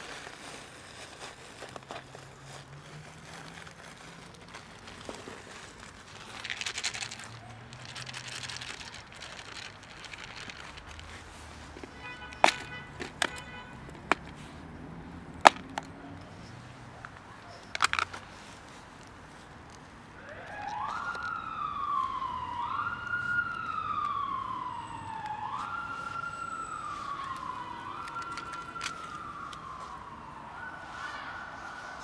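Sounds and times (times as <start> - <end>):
plastic containers clicking: 4.6 - 14.4, 15.3 - 16.3, 17.0 - 18.2, 27.2 - 29.7
emergency siren wailing: 20.1 - 32.0.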